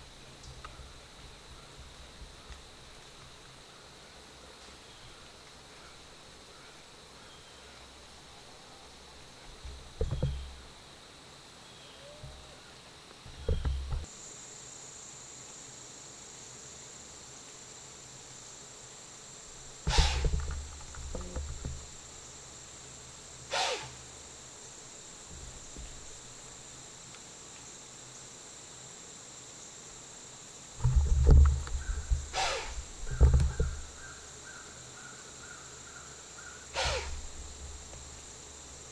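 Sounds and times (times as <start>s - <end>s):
high insect drone: 0.0s - 38.9s
dull thumps: 9.5s - 10.6s, 19.9s - 21.9s, 30.8s - 34.0s
deer alarm snort: 19.9s - 20.3s, 23.5s - 24.0s, 32.3s - 32.8s, 36.7s - 37.2s.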